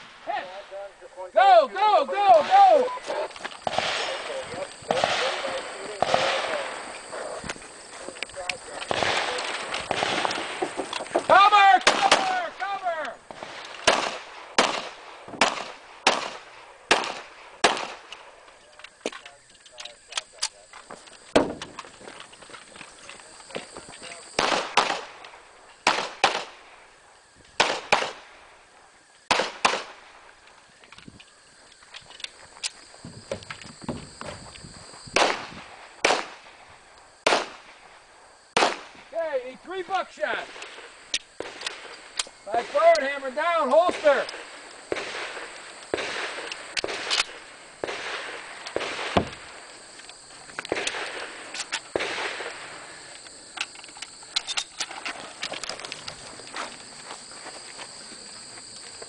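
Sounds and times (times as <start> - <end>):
shotgun shots: 3.6 - 6.9, 8.8 - 10.8, 11.8 - 12.4, 13.3 - 18.2, 24.4 - 25.2, 25.8 - 26.7, 27.6 - 28.4, 29.3 - 30.2, 35.1 - 36.6, 37.2 - 37.8, 38.5 - 39.1, 43.8 - 49.6, 50.7 - 52.8.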